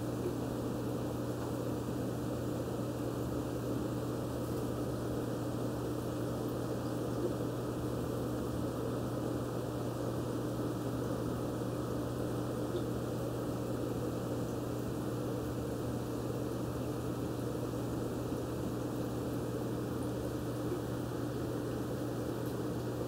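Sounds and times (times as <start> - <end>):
aquarium pump humming: 0.0 - 23.0.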